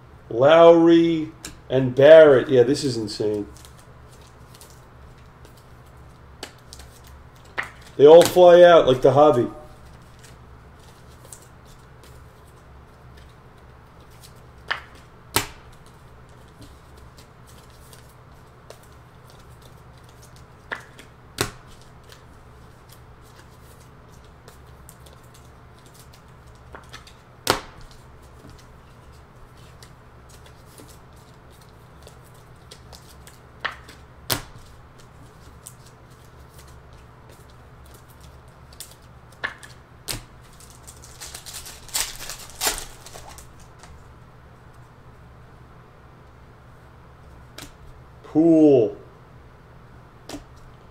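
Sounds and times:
plastic wrapper crinkling: 0:40.4 - 0:44.0.

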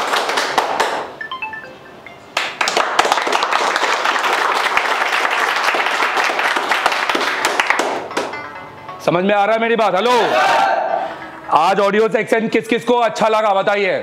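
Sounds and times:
people clapping and applauding: 0:00.0 - 0:01.4, 0:02.3 - 0:08.8.

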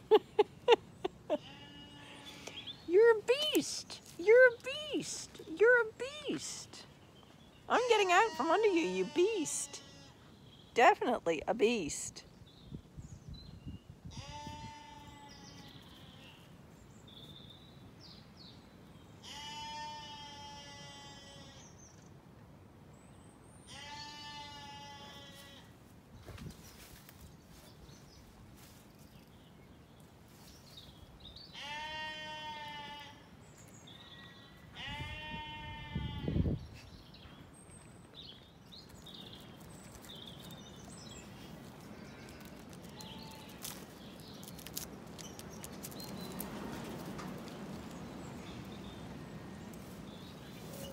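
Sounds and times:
sheep bleating: 0:01.4 - 0:02.5, 0:07.7 - 0:10.2, 0:14.1 - 0:16.4, 0:19.2 - 0:21.6, 0:23.7 - 0:25.7, 0:31.6 - 0:33.2, 0:34.0 - 0:36.4.

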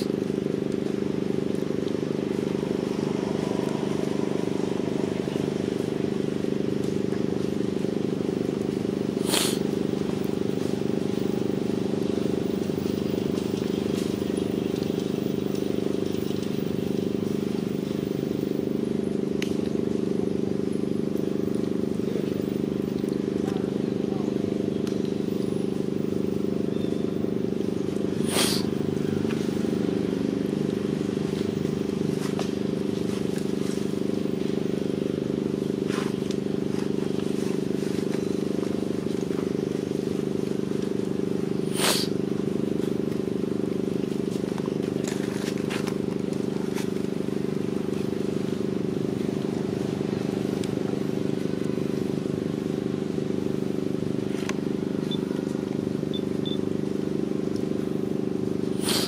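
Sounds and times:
engine droning: 0:00.0 - 0:59.0
low motor hum: 0:00.0 - 0:59.0
faint high peeps: 0:56.1 - 0:56.7.

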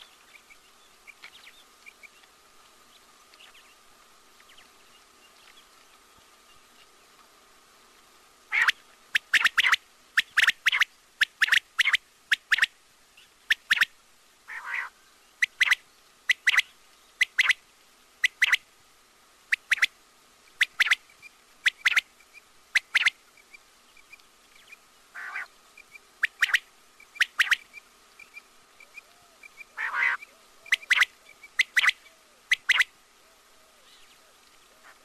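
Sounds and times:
quail calling: 0:08.5 - 0:12.7, 0:14.5 - 0:17.6, 0:18.2 - 0:18.6, 0:19.5 - 0:19.9, 0:20.6 - 0:21.0, 0:21.6 - 0:23.2, 0:25.1 - 0:35.0
rough quail calls: 0:08.5 - 0:12.7, 0:13.5 - 0:17.6, 0:18.2 - 0:18.6, 0:19.5 - 0:35.0.

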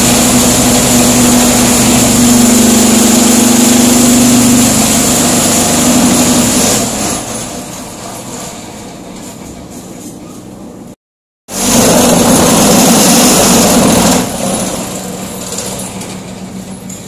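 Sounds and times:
block-making machine humming: 0:00.0 - 0:10.9.

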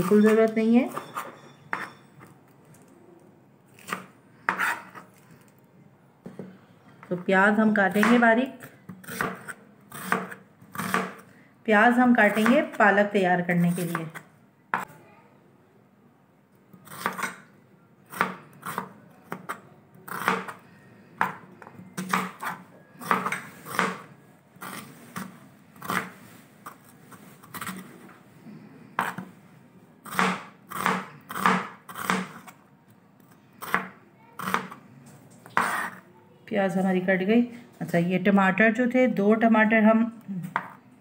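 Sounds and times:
knife chopping onion on board: 0:08.9 - 0:11.2, 0:18.1 - 0:20.6, 0:22.0 - 0:24.1, 0:30.1 - 0:32.5, 0:33.7 - 0:34.8.

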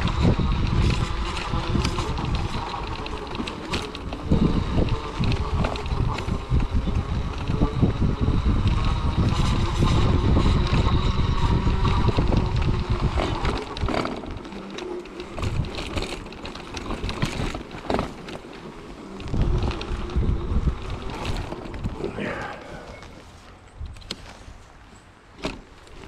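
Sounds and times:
wind buffeting microphone: 0:00.0 - 0:24.8
clicks and rattles on leaves: 0:00.0 - 0:24.9
wheelchair rumbling over dirt: 0:00.0 - 0:26.0.

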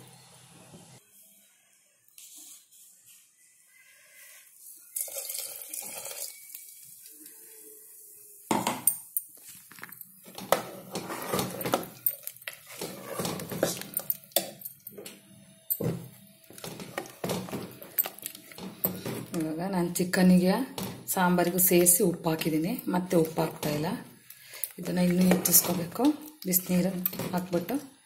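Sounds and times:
ladle scraping metal pot: 0:10.2 - 0:15.1, 0:15.7 - 0:19.4, 0:24.8 - 0:27.7.

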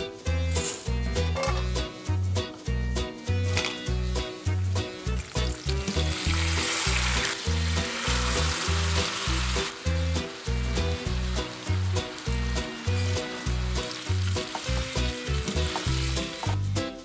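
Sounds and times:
loud sizzling: 0:04.1 - 0:16.6
frying in oil: 0:04.2 - 0:16.6.

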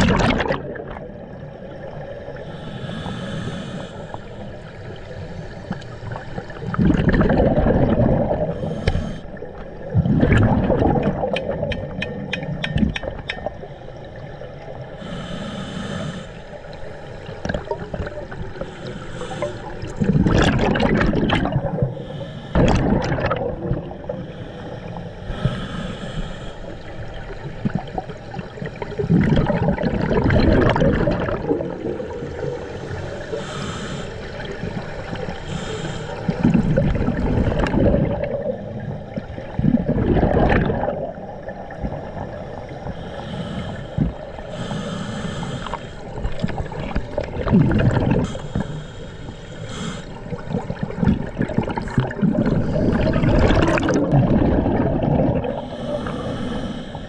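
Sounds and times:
gurgling exhaled bubbles: 0:00.0 - 0:02.5, 0:04.8 - 0:13.6, 0:16.9 - 0:25.5, 0:26.9 - 0:44.6, 0:45.6 - 0:48.8, 0:49.7 - 0:56.8
hissing regulator inhalations: 0:02.4 - 0:05.1, 0:08.4 - 0:09.4, 0:13.5 - 0:20.1, 0:21.5 - 0:23.0, 0:23.9 - 0:27.1, 0:32.5 - 0:36.9, 0:42.7 - 0:47.3, 0:47.9 - 0:50.9, 0:55.4 - 0:57.0.

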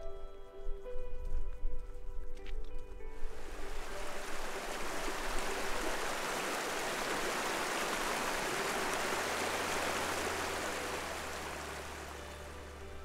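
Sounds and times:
stream rushing: 0:03.2 - 0:13.0.

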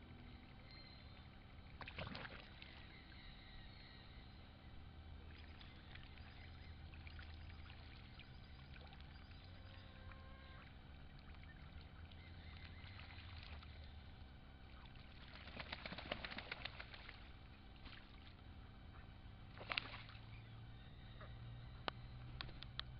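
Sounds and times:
ducks paddling in water: 0:00.0 - 0:22.7
water splashes: 0:01.7 - 0:02.8, 0:11.0 - 0:18.4, 0:19.5 - 0:20.4.

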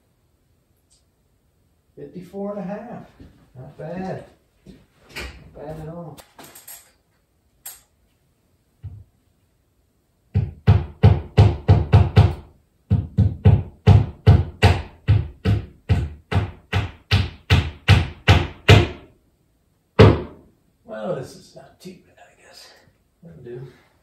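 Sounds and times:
sharp knocks: 0:10.3 - 0:19.1, 0:20.0 - 0:20.5.

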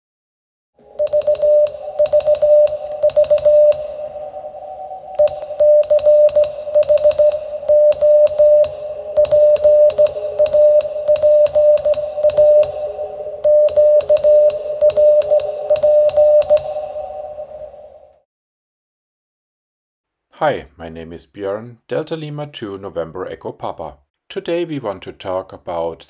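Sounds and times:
key clicks: 0:01.0 - 0:03.8, 0:05.2 - 0:12.8, 0:13.4 - 0:16.7
morse code tone: 0:01.0 - 0:17.8.

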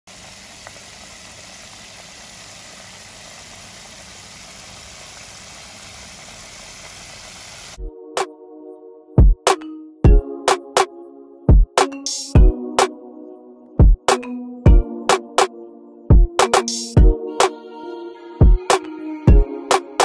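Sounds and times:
chicken wings deep-frying sizzle: 0:00.0 - 0:07.8
music with a beat: 0:09.2 - 0:10.9, 0:11.5 - 0:13.0, 0:13.8 - 0:15.5, 0:16.1 - 0:17.7, 0:18.4 - 0:20.0.

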